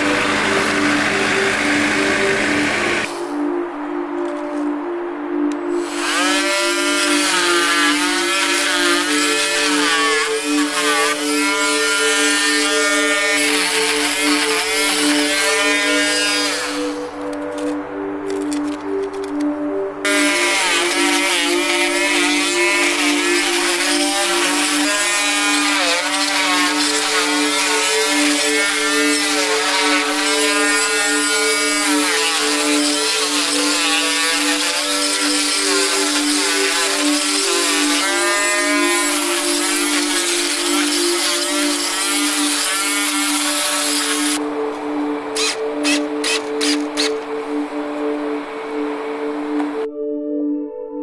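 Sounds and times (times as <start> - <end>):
drill bit grinding wood: 5.8 - 17.0, 20.1 - 44.4, 45.4 - 47.2.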